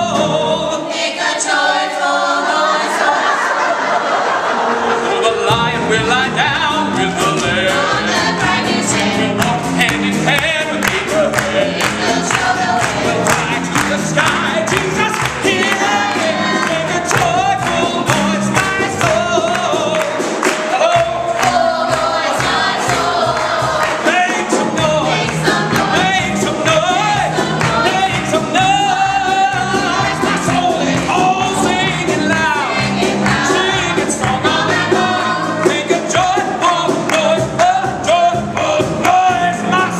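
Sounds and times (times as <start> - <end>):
small chorus singing: 0.0 - 39.9
man belting a song: 5.0 - 7.8
piano bass and drums: 5.1 - 39.9.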